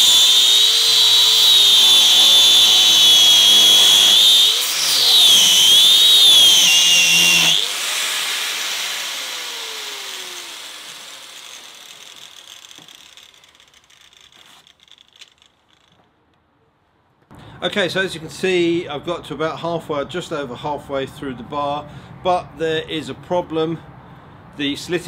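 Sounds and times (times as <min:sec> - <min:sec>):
angle grinder cutting metal: 0:00.0 - 0:15.9
grinder winding down: 0:00.0 - 0:16.0.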